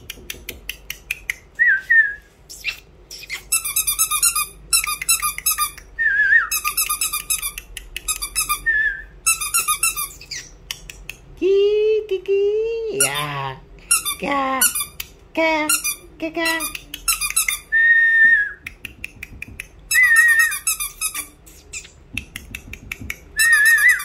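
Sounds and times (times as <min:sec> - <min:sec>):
high rapid chirping whistles: 0:19.9 - 0:21.0, 0:23.4 - 0:24.0.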